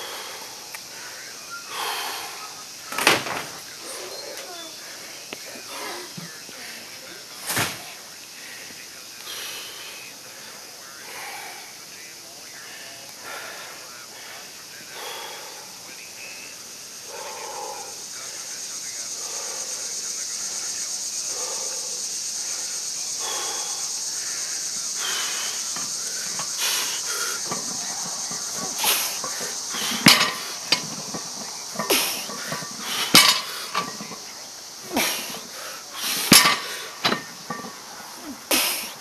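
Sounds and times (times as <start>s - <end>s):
man breathing hard: 0.0s - 3.0s, 3.6s - 7.3s, 8.0s - 16.0s, 16.8s - 39.0s
steady high hiss: 0.0s - 39.0s
barbell clanking: 24.9s - 37.9s.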